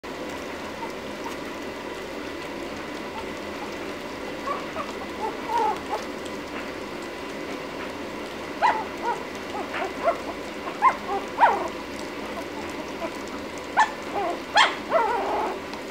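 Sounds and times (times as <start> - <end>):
puppies lapping and licking: 0.2 - 15.9
puppy squeaks and whimpers: 0.8 - 1.5, 4.4 - 6.1, 13.8 - 15.6.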